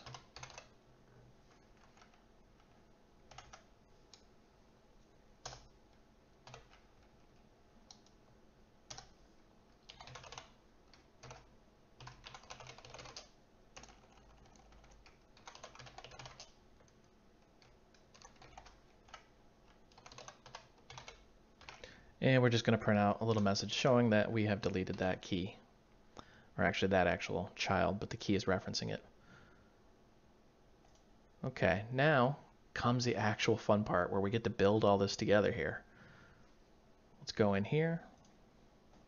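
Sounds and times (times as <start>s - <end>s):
computer keyboard typing: 0.0s - 0.8s, 1.5s - 4.3s, 5.4s - 5.7s, 6.4s - 8.2s, 8.9s - 9.2s, 9.8s - 21.9s.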